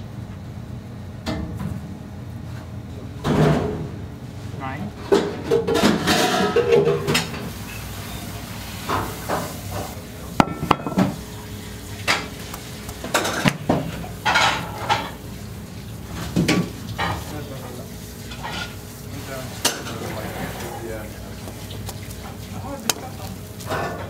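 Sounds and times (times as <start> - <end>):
plastic wrap crinkling: 20.2 - 24.0.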